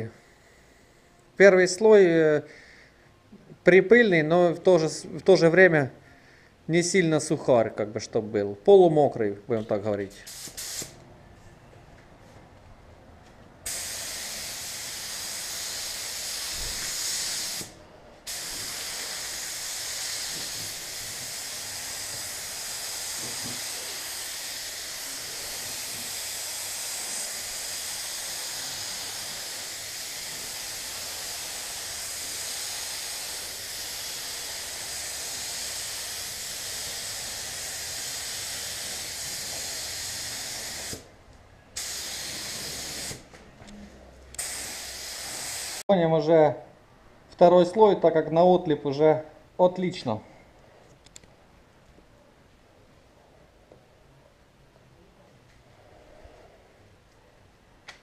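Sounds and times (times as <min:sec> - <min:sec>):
spray gun hissing: 0:10.2 - 0:11.0, 0:13.6 - 0:41.1, 0:41.8 - 0:43.3, 0:44.4 - 0:45.9.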